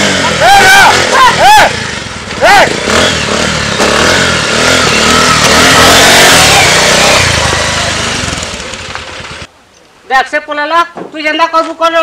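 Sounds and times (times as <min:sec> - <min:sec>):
motorcycle engine revving: 0:00.0 - 0:09.5.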